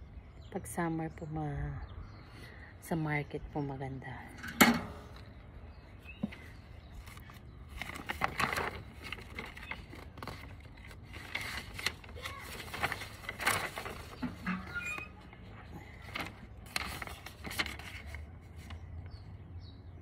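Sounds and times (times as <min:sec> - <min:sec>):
paper crumpling and rustling: 0:06.3 - 0:19.1.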